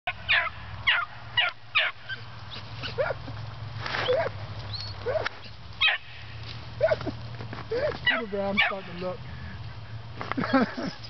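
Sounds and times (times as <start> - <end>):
puppies yipping and barking: 0.1 - 3.4, 4.0 - 9.0.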